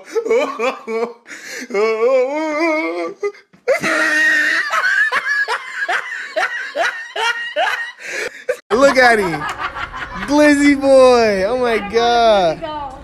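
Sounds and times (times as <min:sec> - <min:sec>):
drawn-out wavering laugh: 0:03.7 - 0:10.3.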